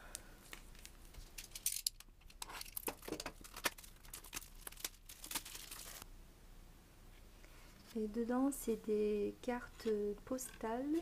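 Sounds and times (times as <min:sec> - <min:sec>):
plastic wrap crackling: 0:00.5 - 0:06.0.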